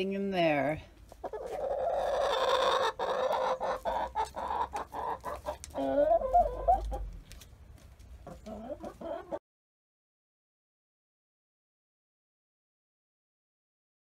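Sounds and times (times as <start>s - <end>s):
hens clucking: 1.0s - 9.4s
loud wavering hen call: 1.6s - 7.0s.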